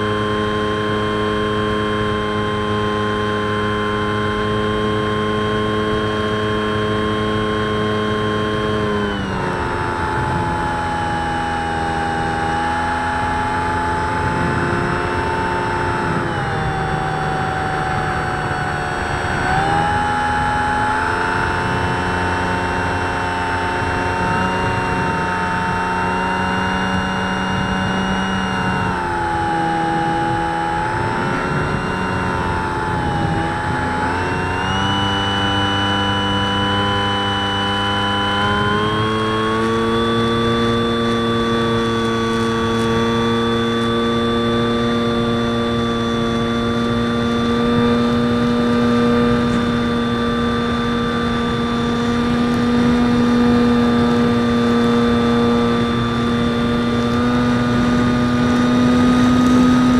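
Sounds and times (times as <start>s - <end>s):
electric motor and propeller whine: 0.0s - 59.9s
wind rush: 27.5s - 35.1s.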